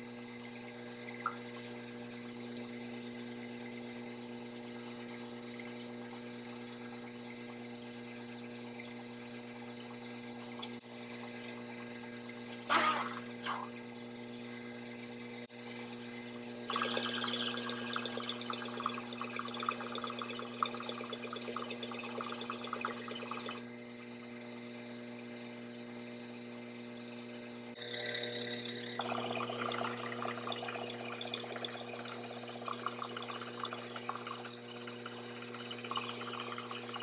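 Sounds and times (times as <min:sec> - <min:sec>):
loud hiss of air: 0:12.7 - 0:13.2.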